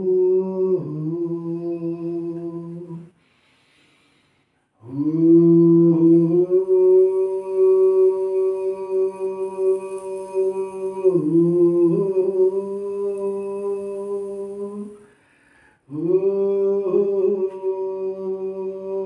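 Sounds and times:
person humming steady note: 0.0 - 3.1, 4.8 - 15.0, 15.9 - 19.0
breath: 3.1 - 4.8, 15.0 - 15.9.

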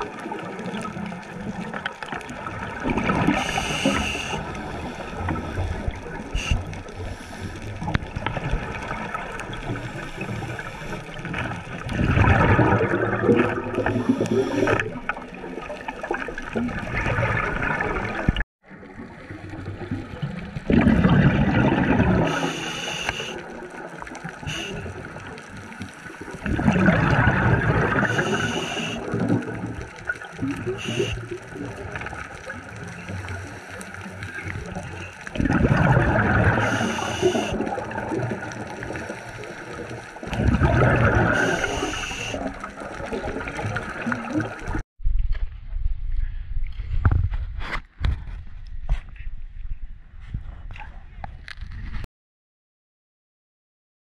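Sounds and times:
exhaled air bubbling: 0.0 - 44.8
underwater hum: 0.0 - 47.3
regulator hiss: 3.4 - 5.1, 22.3 - 23.4, 24.4 - 24.8, 28.0 - 29.0, 30.8 - 31.2, 36.6 - 37.6, 41.4 - 42.4.

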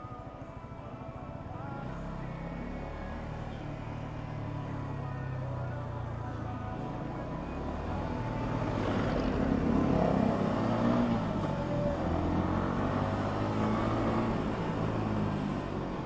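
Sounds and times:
wind and road noise: 4.4 - 16.0.

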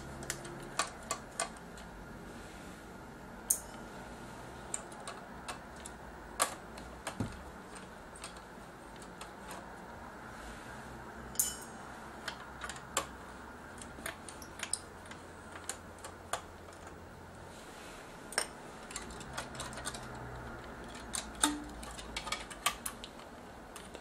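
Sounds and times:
fingers clicking circuit connectors: 0.2 - 1.9, 4.7 - 9.8, 12.2 - 17.0, 18.3 - 24.0.

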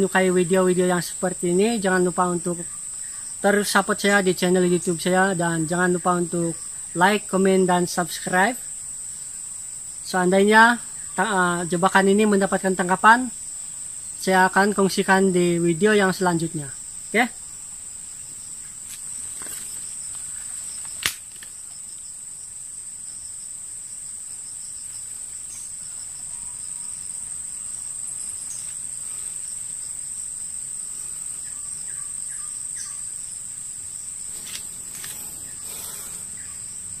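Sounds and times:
forest insects droning: 0.0 - 37.0
sharp click: 20.9 - 21.6.

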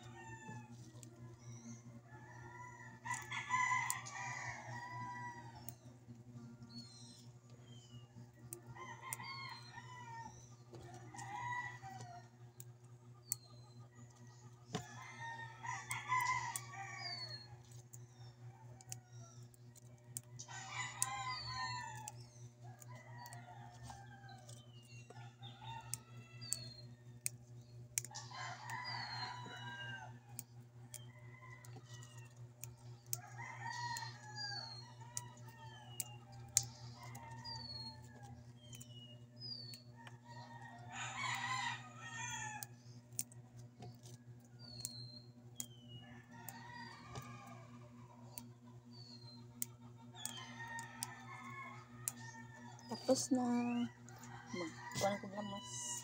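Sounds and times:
steady low hum: 0.0 - 56.0
rooster crowing: 2.0 - 5.7, 8.5 - 12.4, 14.7 - 17.6, 20.2 - 24.5, 28.1 - 32.4, 33.1 - 38.4, 39.9 - 42.8, 46.0 - 48.2, 50.2 - 56.0.

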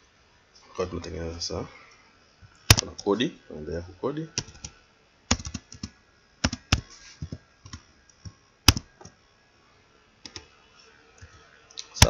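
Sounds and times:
computer keyboard typing: 4.4 - 7.8, 8.7 - 9.1.

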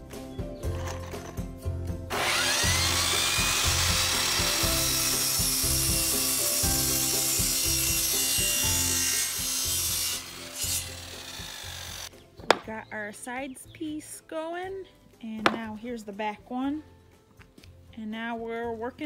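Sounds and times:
background music with steady beat: 0.0 - 19.0
miter saw cutting wood: 2.1 - 12.1.

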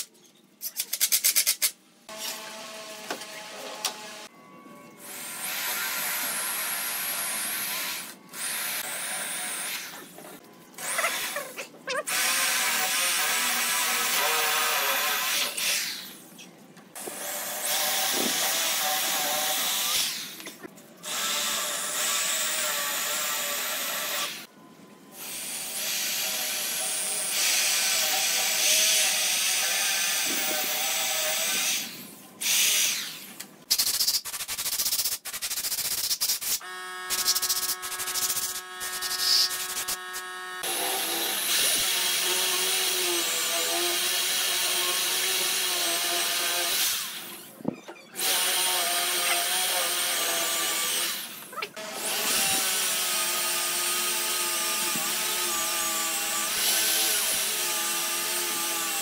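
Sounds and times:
electric drill boring into wood: 36.6 - 47.5, 48.2 - 59.0.

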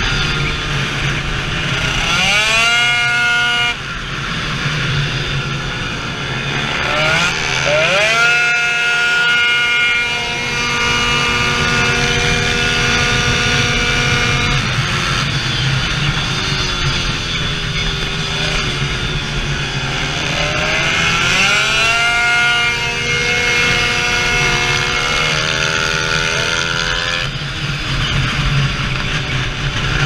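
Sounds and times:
two-stroke scooter engine revving: 0.0 - 30.0.

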